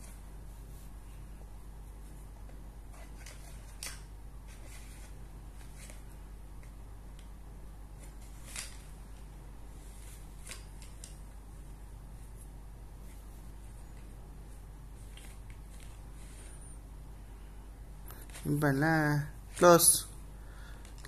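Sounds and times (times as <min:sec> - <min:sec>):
steady low hum: 0:00.0 - 0:21.0
pencils tapping and rustling: 0:02.0 - 0:07.4, 0:08.0 - 0:11.4, 0:20.7 - 0:21.0.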